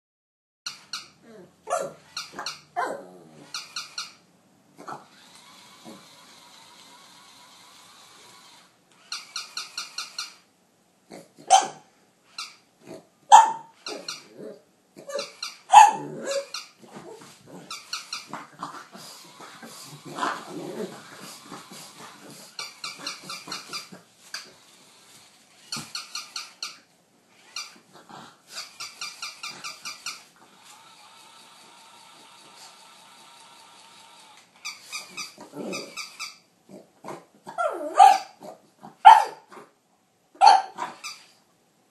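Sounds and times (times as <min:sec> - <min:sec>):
dog barking and growling: 0:01.2 - 0:03.8, 0:04.8 - 0:05.1, 0:11.1 - 0:11.9, 0:12.8 - 0:24.1, 0:35.1 - 0:39.8, 0:40.4 - 0:41.2
rapid high-pitched squeaking: 0:02.0 - 0:02.8, 0:03.4 - 0:04.2, 0:05.2 - 0:10.4, 0:13.4 - 0:14.3, 0:15.1 - 0:16.8, 0:17.7 - 0:18.4, 0:19.2 - 0:27.8, 0:28.5 - 0:36.4, 0:40.6 - 0:41.4.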